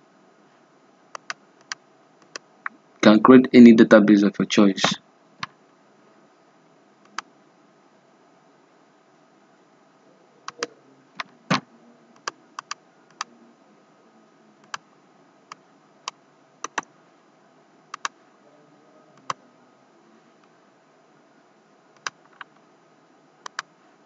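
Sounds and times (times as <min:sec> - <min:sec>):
faint steady hiss: 0:00.0 - 0:24.0
computer mouse clicks: 0:01.1 - 0:02.8, 0:12.2 - 0:13.3, 0:15.5 - 0:16.9, 0:17.9 - 0:18.2, 0:22.0 - 0:22.6, 0:23.4 - 0:23.7.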